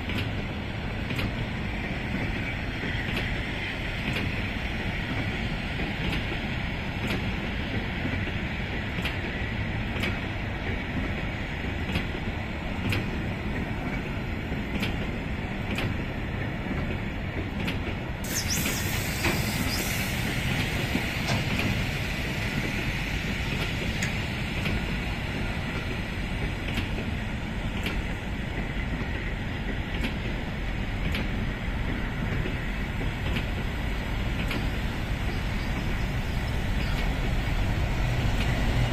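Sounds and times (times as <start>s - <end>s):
train low rumble: 0.0s - 38.9s
short high hiss: 18.2s - 21.9s.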